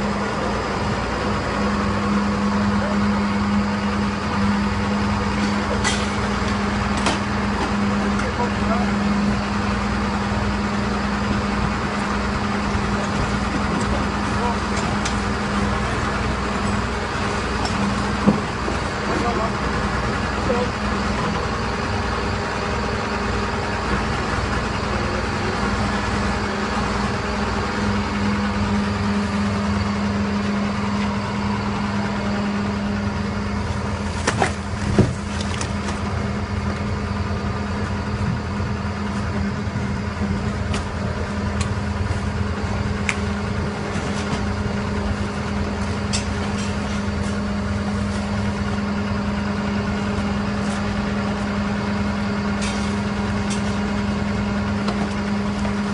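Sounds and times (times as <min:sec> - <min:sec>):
lorry diesel engine running: 0:00.0 - 0:55.9.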